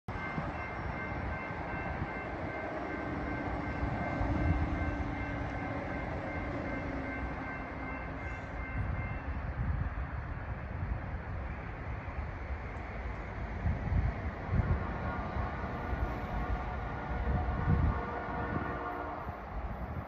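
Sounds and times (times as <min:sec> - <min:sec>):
electronic crossing bell ringing: 0:00.1 - 0:09.4.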